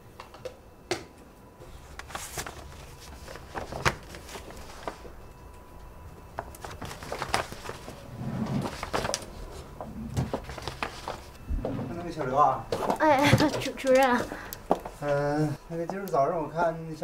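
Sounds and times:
paper rustling: 1.6 - 5.2, 6.4 - 11.4.

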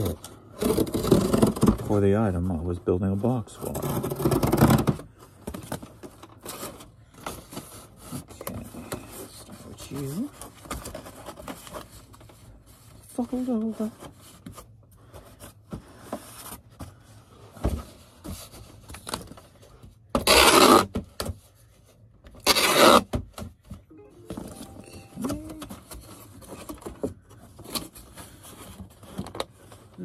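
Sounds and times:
cardboard folded and scraped: 0.0 - 2.5, 6.4 - 23.2
packing tape ripping screech: 20.2 - 20.9, 22.4 - 23.1.

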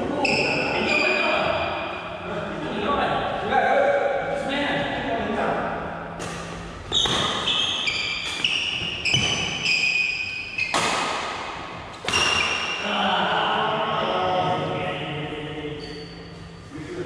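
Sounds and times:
shoes squeaking on court floor: 0.2 - 1.8, 6.9 - 10.9, 12.0 - 12.8
racket hitting shuttlecock: 6.2 - 12.8.

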